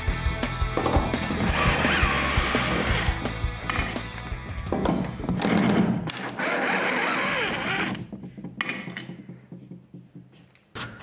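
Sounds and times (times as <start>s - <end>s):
cordless drill whirring: 6.2s - 8.0s.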